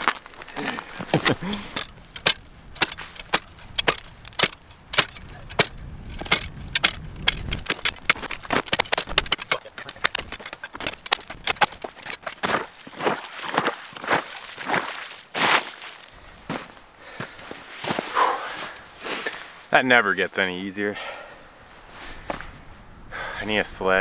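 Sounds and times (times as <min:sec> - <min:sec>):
ice cracking: 0:00.0 - 0:05.7, 0:07.4 - 0:16.1
ice chisel striking ice: 0:01.1 - 0:15.8.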